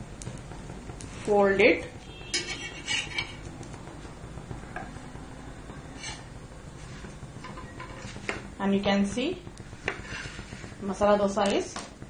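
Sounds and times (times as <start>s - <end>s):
metal spatula scraping griddle: 2.3s - 3.5s, 5.9s - 8.4s, 9.8s - 10.8s.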